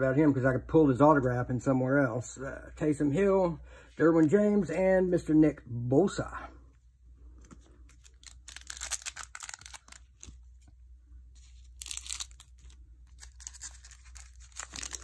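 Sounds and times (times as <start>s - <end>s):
foil wrapper tearing and crinkling: 8.0s - 10.3s, 11.6s - 15.0s.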